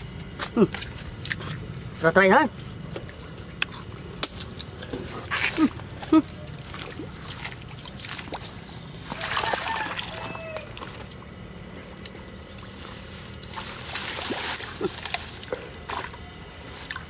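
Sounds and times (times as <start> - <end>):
water splashing and sloshing: 0.7 - 17.0.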